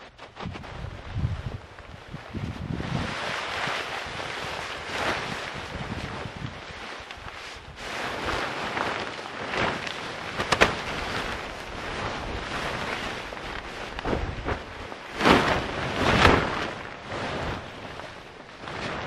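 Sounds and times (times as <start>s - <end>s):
tent fabric rustling and swishing: 0.0s - 19.0s.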